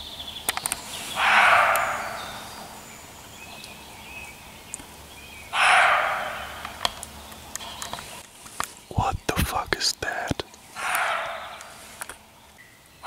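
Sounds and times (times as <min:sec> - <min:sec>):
deer barking: 0:01.2 - 0:02.5, 0:05.6 - 0:06.8, 0:10.8 - 0:11.9.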